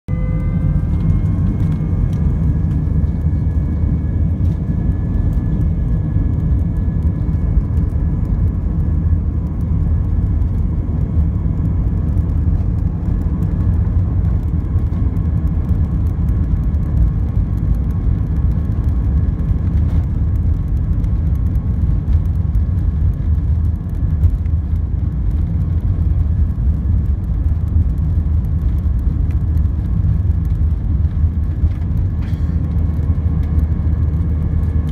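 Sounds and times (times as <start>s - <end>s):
faint high whine: 0.1s - 7.4s
jet engines idling rumble: 0.1s - 34.9s.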